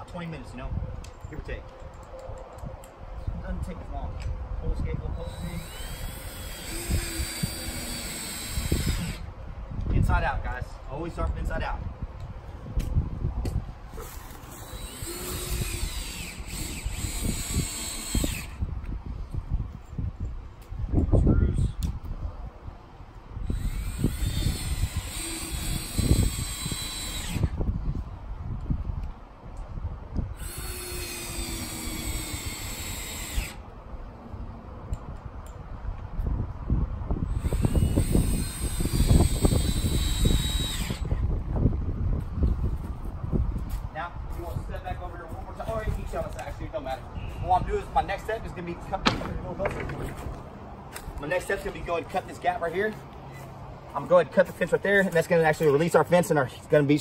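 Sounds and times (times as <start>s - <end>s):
power drill motor whine: 5.2s - 9.3s, 14.0s - 18.6s, 23.4s - 27.6s, 30.4s - 33.6s, 37.3s - 41.2s.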